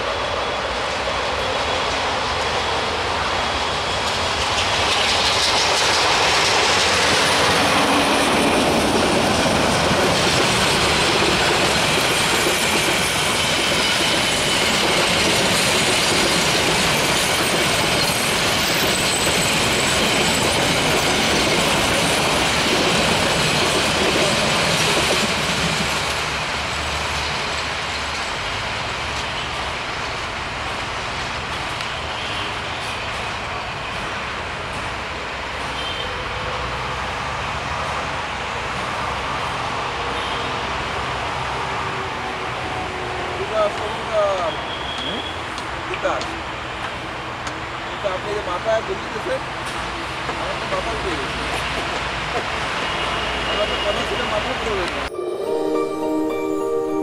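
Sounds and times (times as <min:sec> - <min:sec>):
faint high wheel squeal: 0:44.4 - 0:45.4.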